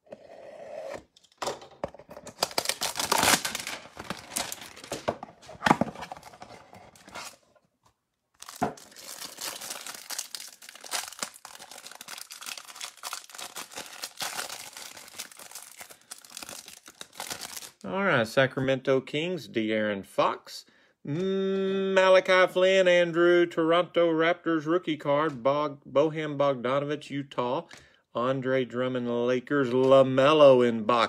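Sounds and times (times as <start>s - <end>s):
cardboard and cellophane tearing: 2.2s - 7.4s, 8.4s - 17.8s
plastic crinkling: 2.2s - 7.4s, 8.4s - 17.8s.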